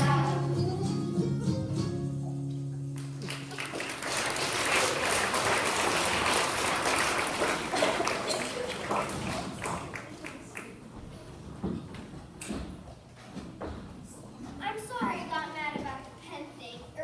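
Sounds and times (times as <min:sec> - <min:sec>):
audience applauding: 0:03.0 - 0:10.8.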